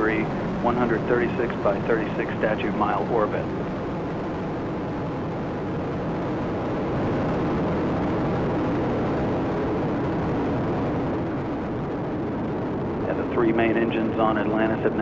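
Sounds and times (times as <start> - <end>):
rocket engines rumbling: 0.0 - 15.0.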